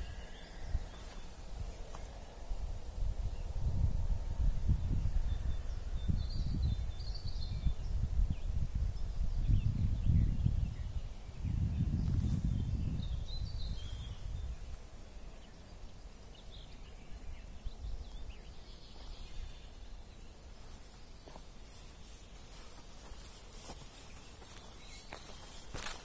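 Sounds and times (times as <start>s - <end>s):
faint footsteps on forest floor: 0.0s - 2.4s, 12.0s - 12.6s, 18.1s - 26.0s.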